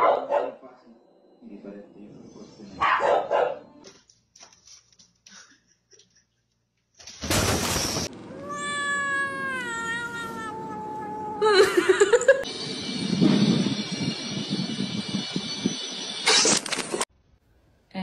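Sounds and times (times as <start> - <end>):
cat wavering cry: 8.2 - 12.3
cat meowing: 8.3 - 11.6.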